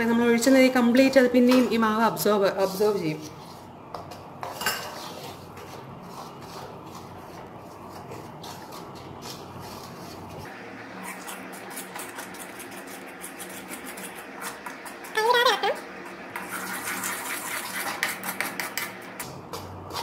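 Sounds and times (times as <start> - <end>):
spatula scraping metal pan: 16.3 - 19.1.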